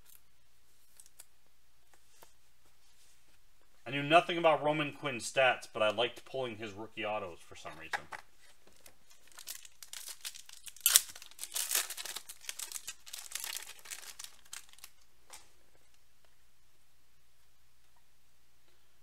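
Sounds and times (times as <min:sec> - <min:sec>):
foil crinkling: 0:08.5 - 0:15.5
foil wrapper ripping: 0:08.8 - 0:15.0.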